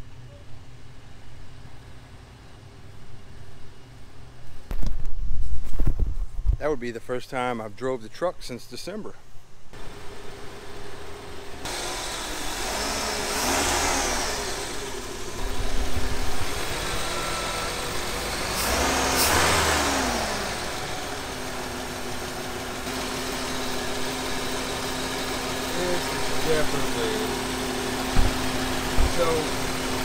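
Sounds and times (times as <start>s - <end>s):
car engine running and revving: 9.8s - 30.0s.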